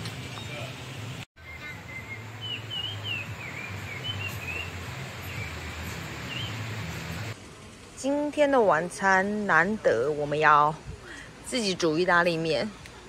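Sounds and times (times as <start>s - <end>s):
birds chirping: 0.0s - 7.4s
mountain stream rushing: 0.0s - 7.4s.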